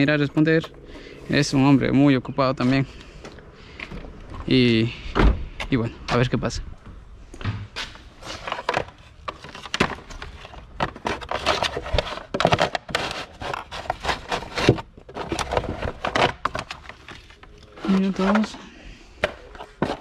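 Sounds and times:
objects being handled: 7.4s - 20.0s.

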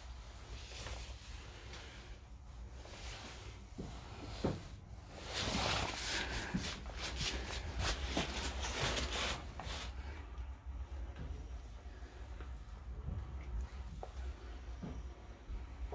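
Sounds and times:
low steady hum: 0.0s - 15.9s
rustling and scuffing: 0.1s - 10.4s
footsteps: 3.2s - 10.0s.

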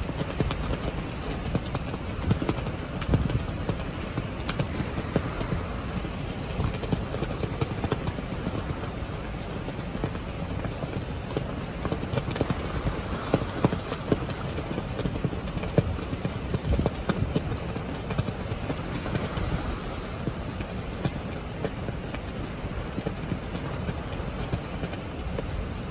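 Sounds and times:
strong wind rushing: 0.0s - 24.4s.

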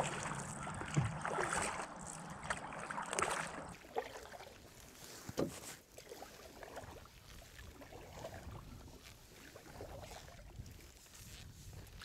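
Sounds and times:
water movement: 0.0s - 12.0s
canoe knocks: 5.3s - 5.8s.

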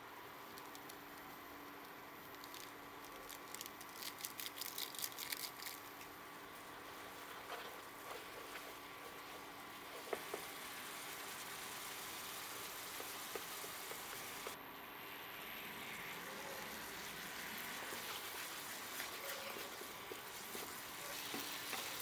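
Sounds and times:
faint steady hum: 0.0s - 22.0s
crackly rustle: 0.4s - 10.6s, 17.6s - 22.0s
wooden spatula stirring noodles: 6.4s - 14.6s, 17.6s - 22.0s.

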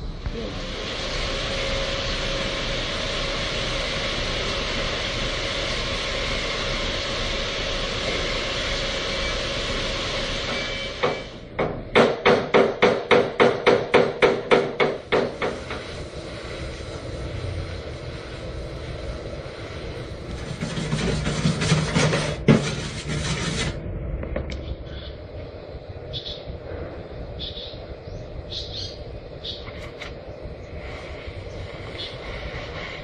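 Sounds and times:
welding torch hissing: 0.0s - 11.5s, 13.2s - 23.8s, 24.8s - 33.0s
hammer striking sheet steel: 10.5s - 15.8s.

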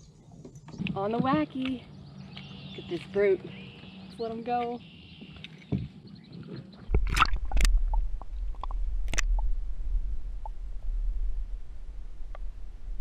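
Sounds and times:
muffled underwater rumble: 6.3s - 13.0s
underwater clicks: 6.9s - 9.5s
water splashing and gurgling: 6.9s - 10.6s.

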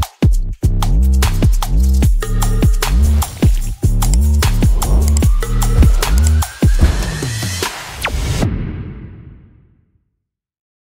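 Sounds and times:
electronic dubstep music: 2.9s - 8.1s.

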